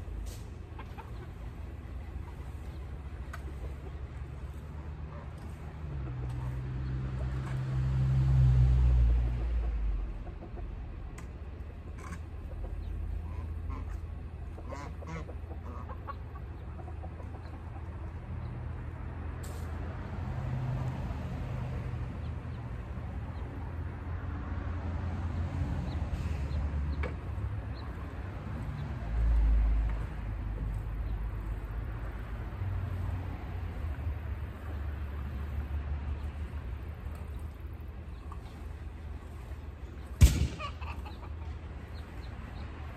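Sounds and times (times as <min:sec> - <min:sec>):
chickens clucking: 0:00.3 - 0:07.7, 0:09.3 - 0:18.9, 0:25.8 - 0:42.9.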